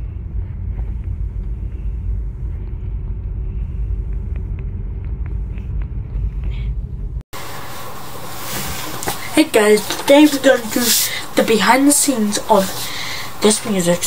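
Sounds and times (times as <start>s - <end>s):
car road and engine rumble: 0.0s - 7.3s.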